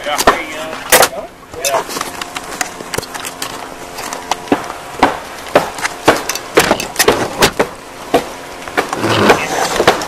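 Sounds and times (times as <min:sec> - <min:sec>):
wooden fence boards knocking: 0:04.4 - 0:10.0.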